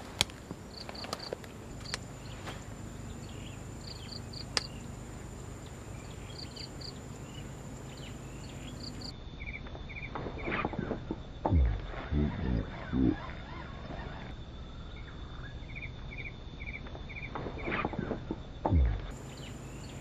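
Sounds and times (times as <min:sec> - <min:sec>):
insects chirping: 0:00.0 - 0:20.0
sharp clicks: 0:03.8 - 0:04.8.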